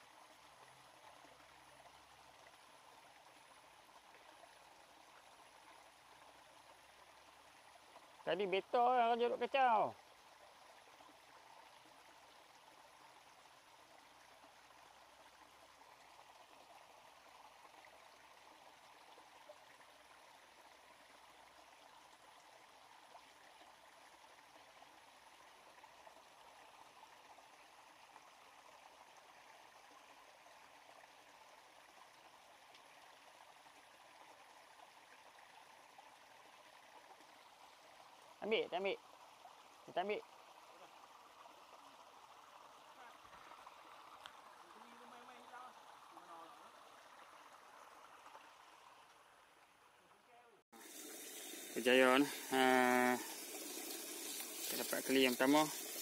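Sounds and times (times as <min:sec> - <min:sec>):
small stream flowing: 0:00.0 - 0:56.0.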